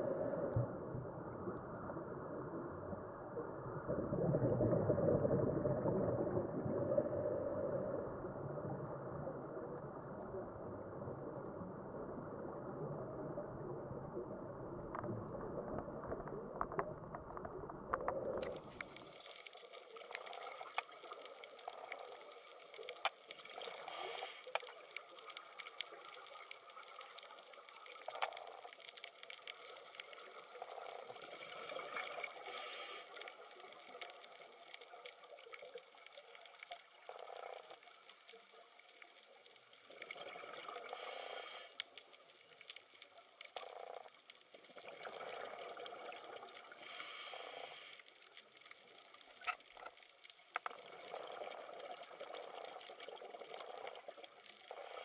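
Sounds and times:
watery swells: 0:00.0 - 0:43.6, 0:44.5 - 0:55.0
underwater crackling clicks: 0:14.8 - 0:38.3, 0:39.8 - 0:47.1, 0:48.3 - 0:55.0.

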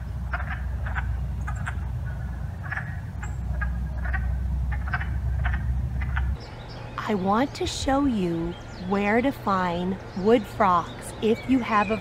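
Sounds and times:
frogs clucking: 0:00.0 - 0:07.7
low rumble: 0:00.0 - 0:12.0.

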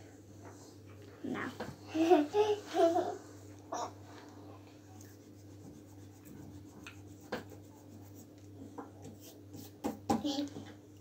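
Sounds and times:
pencil scratching on paper: 0:05.1 - 0:08.4.

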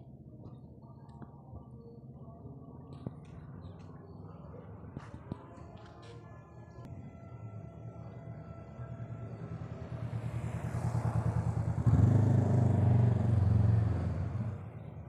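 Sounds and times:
motorcycle engine passing: 0:09.9 - 0:14.8.

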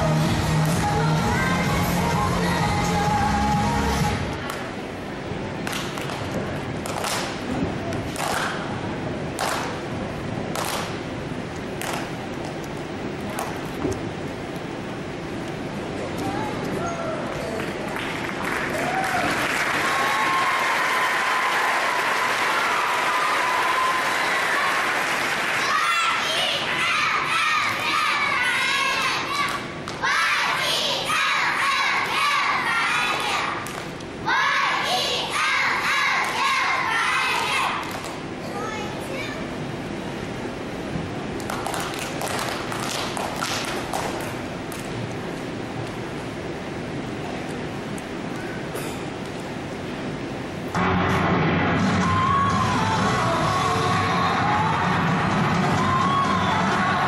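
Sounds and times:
crowded gymnasium hum: 0:00.0 - 0:57.0
cheerleaders clapping and stomping: 0:09.4 - 0:09.8, 0:35.8 - 0:38.2, 0:41.4 - 0:44.9
long high cheer: 0:16.8 - 0:30.3, 0:51.9 - 0:57.0
audience applauding: 0:17.2 - 0:26.0, 0:41.4 - 0:44.3.

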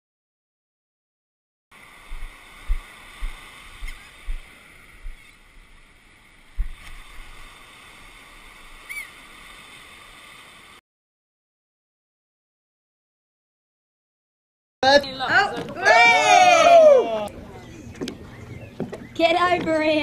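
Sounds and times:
ocean surf: 0:01.7 - 0:10.8, 0:14.8 - 0:17.5
wind buffeting microphone: 0:01.9 - 0:07.6, 0:17.3 - 0:20.0
gull call: 0:08.8 - 0:09.2.

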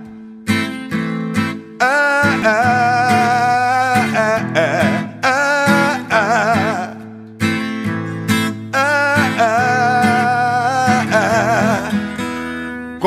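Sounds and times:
acoustic guitar: 0:00.0 - 0:13.0
person singing long wavering notes: 0:01.8 - 0:07.2, 0:08.6 - 0:12.4.

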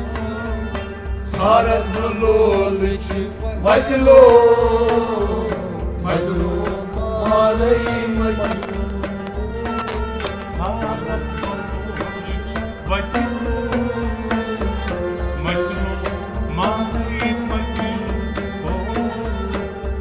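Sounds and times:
harmonium chords: 0:00.0 - 0:20.0
man singing: 0:00.0 - 0:20.0
drum beat: 0:01.1 - 0:20.0.

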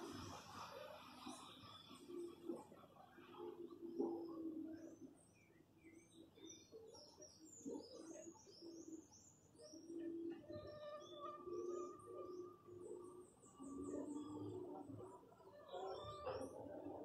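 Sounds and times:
small birds chirping: 0:03.5 - 0:16.9.

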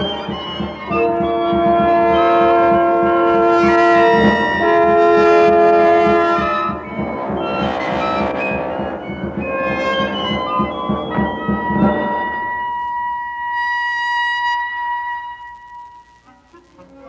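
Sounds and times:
chamber ensemble music: 0:00.0 - 0:13.5.

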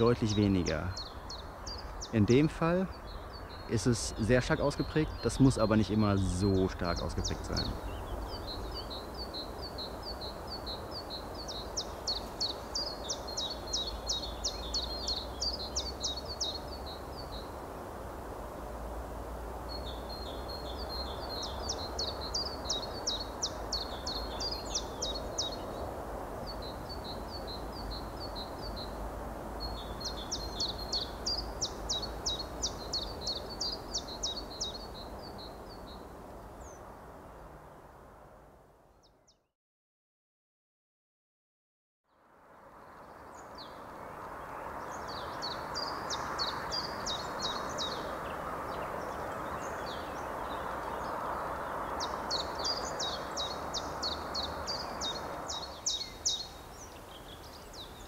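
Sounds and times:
songbird singing trilled phrases: 0:00.0 - 0:17.5, 0:19.7 - 0:25.8, 0:29.6 - 0:36.8, 0:44.8 - 0:58.0
low outdoor rush: 0:00.0 - 0:38.5, 0:42.5 - 0:58.0.

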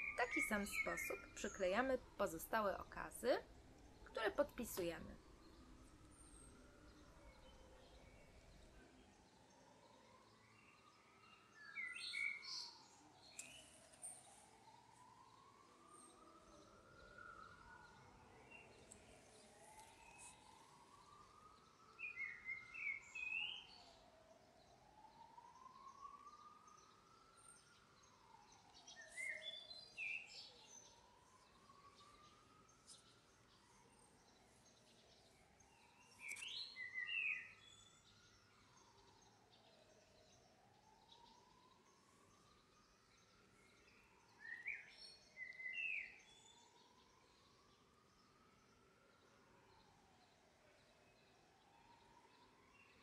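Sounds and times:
birds chirping: 0:00.0 - 0:05.1
distant siren wailing: 0:00.0 - 0:53.0.

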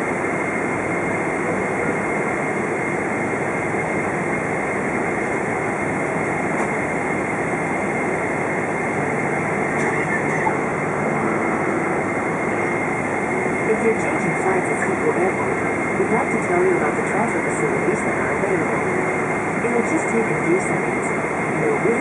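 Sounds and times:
engine and airflow rumble: 0:00.0 - 0:22.0
thin engine whine: 0:08.8 - 0:16.3.

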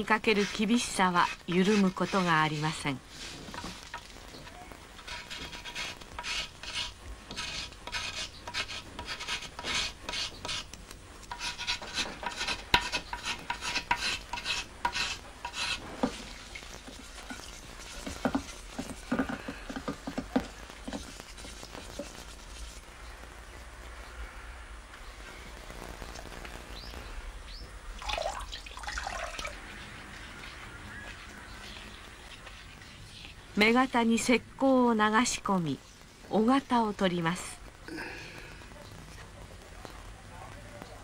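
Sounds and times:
metal scraper scraping plaster: 0:00.0 - 0:03.7, 0:05.0 - 0:10.7, 0:11.3 - 0:19.5
soft rubbing: 0:00.0 - 0:24.0, 0:29.4 - 0:34.0.

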